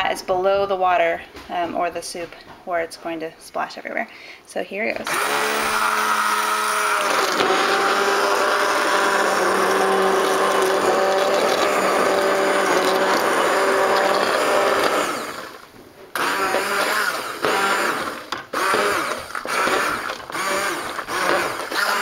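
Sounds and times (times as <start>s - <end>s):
immersion blender whirring: 5.0s - 22.0s.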